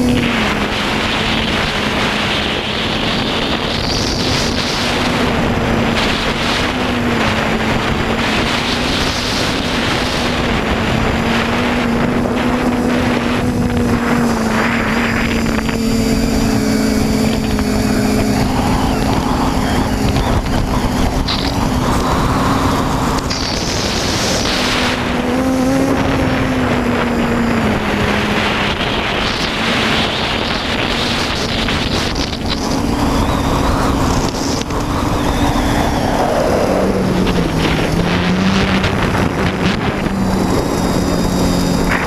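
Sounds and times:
drone propellers humming: 0.0s - 42.0s
wind rushing over microphone: 0.0s - 42.0s.

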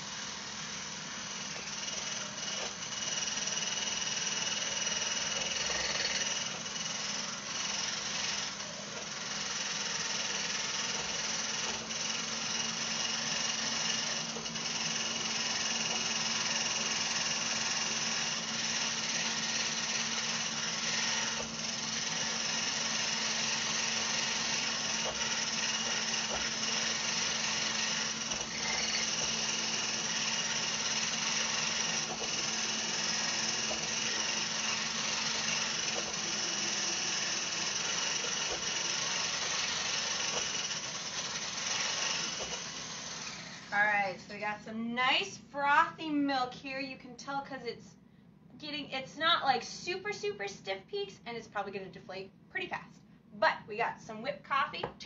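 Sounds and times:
immersion blender whisking: 0.0s - 43.7s.

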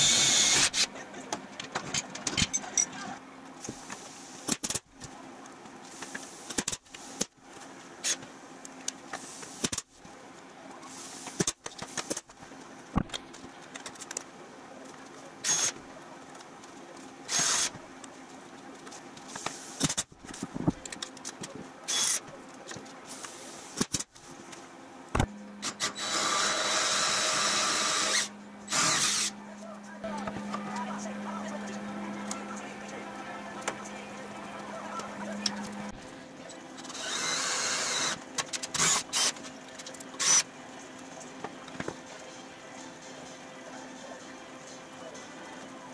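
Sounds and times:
hand drill boring into metal: 25.6s - 29.3s.

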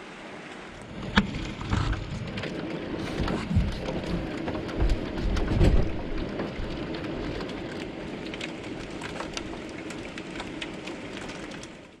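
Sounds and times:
heavy rain: 0.0s - 12.0s
raindrops ticking on window glass: 1.0s - 12.0s
low thunder rumble: 1.2s - 8.3s.

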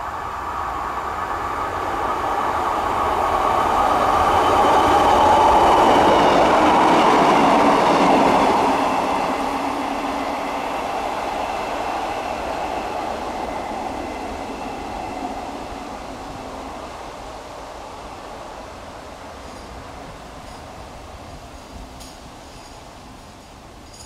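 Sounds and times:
diesel train passing: 0.0s - 24.0s.

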